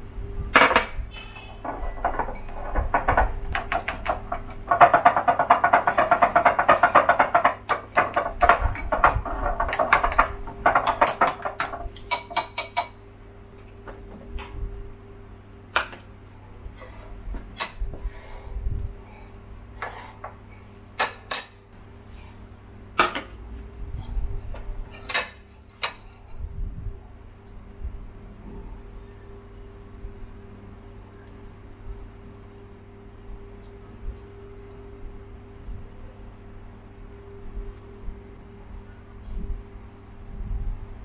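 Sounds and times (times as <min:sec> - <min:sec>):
chopsticks beating batter in bowl: 0:01.6 - 0:13.0.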